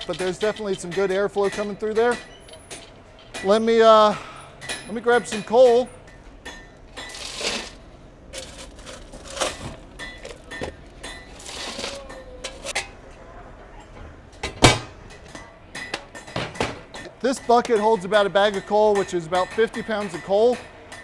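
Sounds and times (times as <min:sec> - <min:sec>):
coal bucket clinks and knocks: 0:00.0 - 0:03.6, 0:06.5 - 0:13.0
coal rattling: 0:00.0 - 0:12.9.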